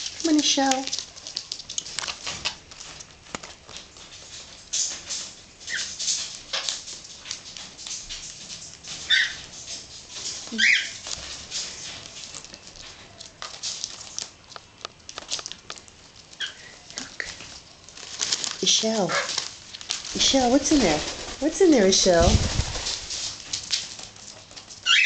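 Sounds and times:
wrapping paper rustling: 0:00.0 - 0:25.0
parrots chirping: 0:05.6 - 0:06.8, 0:08.9 - 0:09.8, 0:10.5 - 0:11.1, 0:16.3 - 0:17.4, 0:24.8 - 0:25.0.

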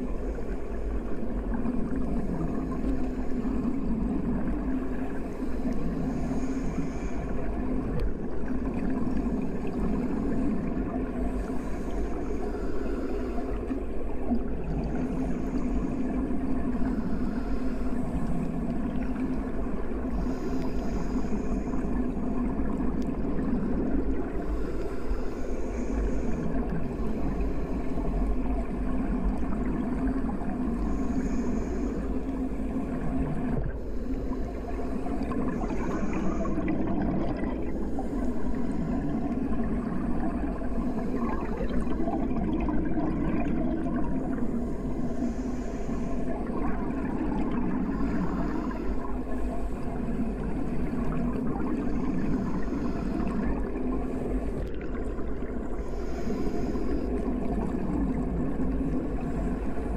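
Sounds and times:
gurgling water: 0:00.0 - 0:59.9
underwater low rumble: 0:00.0 - 0:59.9.

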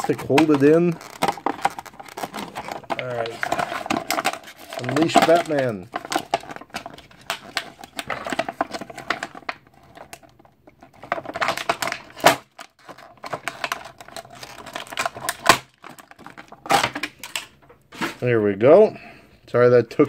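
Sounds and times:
plastic bag crinkling: 0:00.0 - 0:18.2.

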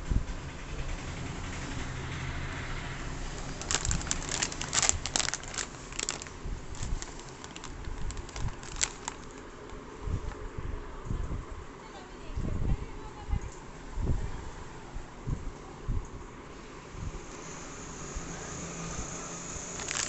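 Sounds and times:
plastic packets crinkling: 0:03.2 - 0:09.8, 0:19.8 - 0:20.0.

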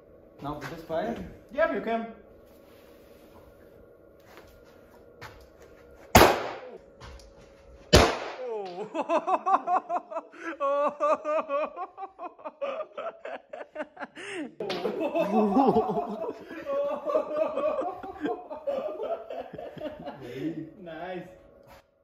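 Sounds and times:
pistol shot: 0:06.1 - 0:06.7, 0:07.9 - 0:08.5
man laughing: 0:08.4 - 0:20.8.

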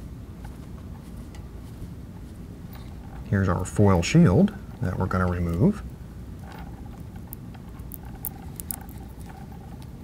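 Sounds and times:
low steady hum: 0:00.0 - 0:10.0
fingers handling cable wires: 0:06.4 - 0:10.0.

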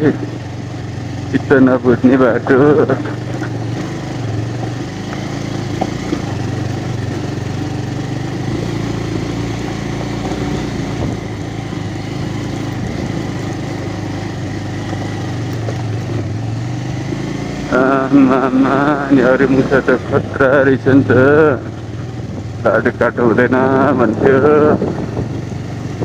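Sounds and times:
motorcycle engine running: 0:00.0 - 0:26.0
small knocks from bumpy ride: 0:03.0 - 0:07.7, 0:14.8 - 0:16.3.

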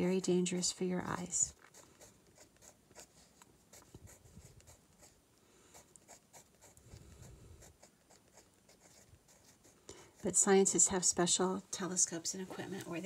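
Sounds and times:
pencil scratching on paper: 0:01.5 - 0:10.6.

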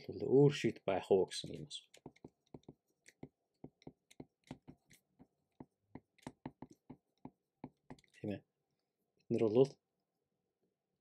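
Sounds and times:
stylus tapping on tablet screen: 0:01.9 - 0:08.2.

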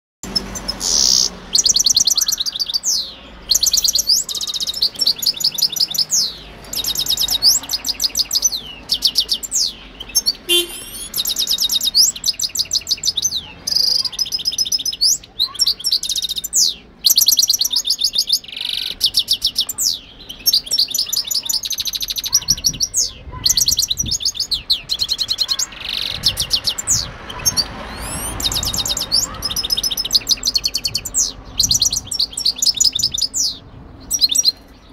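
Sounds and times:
finch twittering song: 0:00.2 - 0:34.9.

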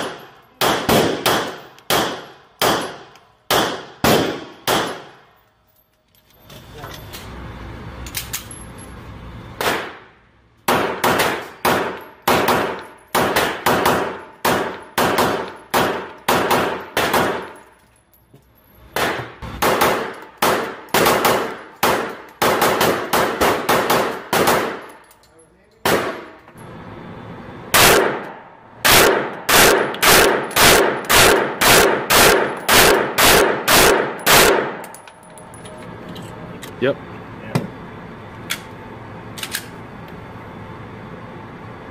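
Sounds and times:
pistol shots echoing indoors: 0:00.0 - 0:05.3, 0:09.6 - 0:10.1, 0:10.7 - 0:17.6, 0:18.9 - 0:25.1, 0:25.8 - 0:26.4, 0:27.7 - 0:34.9.

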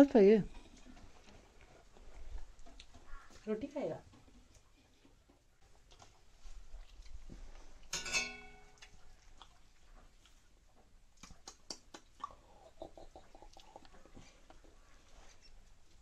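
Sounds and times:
dog chewing food: 0:08.8 - 0:10.7.

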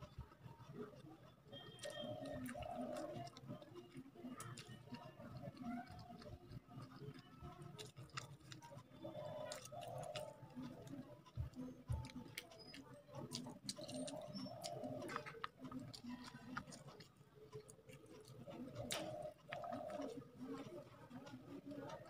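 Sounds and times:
fingers mixing rice on plate: 0:00.0 - 0:22.0
wet chewing clicks: 0:00.0 - 0:22.0
low wavering coo: 0:01.7 - 0:07.6, 0:08.7 - 0:16.7, 0:18.4 - 0:22.0.

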